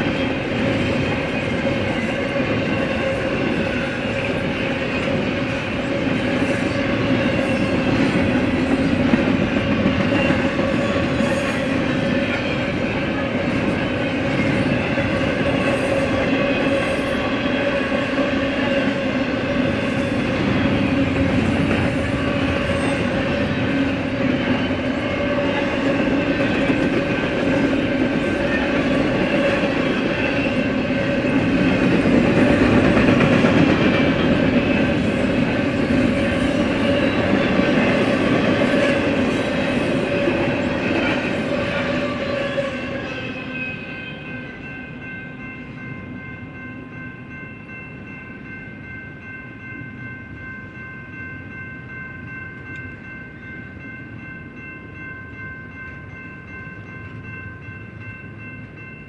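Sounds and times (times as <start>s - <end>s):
train wheels clickety-clack: 0.0s - 19.1s, 19.7s - 43.2s.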